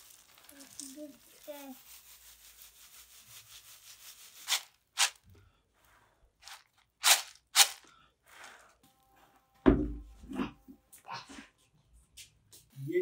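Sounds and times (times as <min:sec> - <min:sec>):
peanuts rubbing in a metal tray: 0:00.0 - 0:05.2, 0:06.4 - 0:07.8
sharp rustling swishes: 0:04.2 - 0:05.2, 0:06.4 - 0:07.8.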